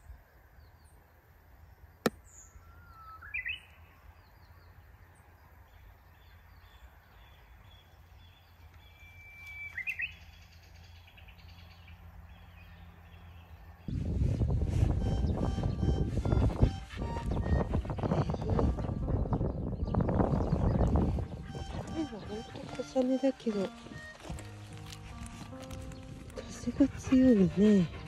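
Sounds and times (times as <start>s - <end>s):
low rumble of wind: 0.0s - 28.0s
bird singing whistled song: 2.2s - 4.4s, 7.7s - 11.8s
music: 14.6s - 28.0s.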